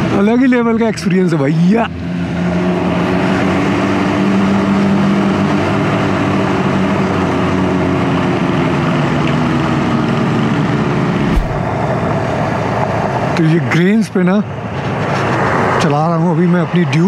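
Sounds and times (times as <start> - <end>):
rushing noise: 11.1 - 11.9.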